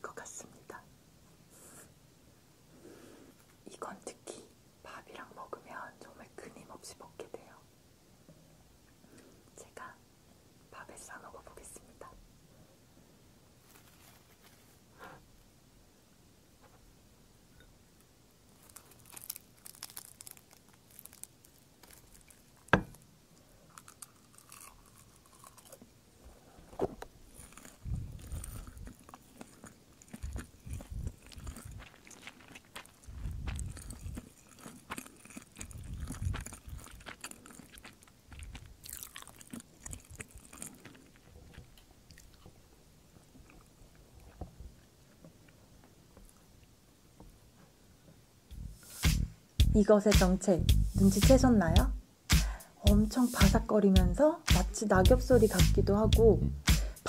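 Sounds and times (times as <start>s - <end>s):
seaweed sheets crinkling: 13.6s - 14.8s, 18.5s - 22.9s, 26.8s - 42.3s
crunchy chewing: 18.5s - 42.6s.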